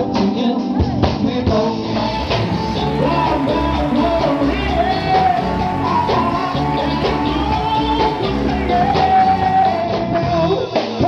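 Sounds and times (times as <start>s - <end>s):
man singing into a microphone: 0.0s - 11.0s
electric bass: 1.7s - 10.1s
steady drum beat: 2.1s - 9.8s.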